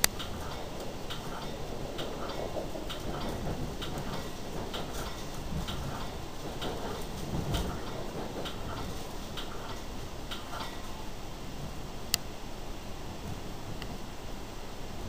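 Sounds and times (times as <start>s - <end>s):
heavy bump: 0.0s - 10.8s
faint regular ticking: 0.0s - 12.4s
train coach rumble: 0.0s - 15.0s.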